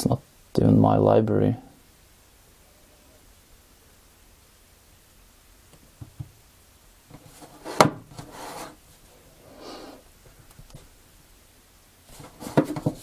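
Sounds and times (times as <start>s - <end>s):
short rubbing sounds: 7.2s - 8.8s.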